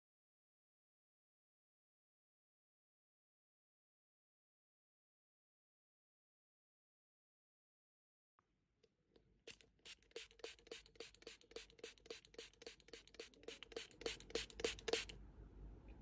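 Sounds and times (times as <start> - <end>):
spray bottle pump click and hiss: 9.5 - 15.2.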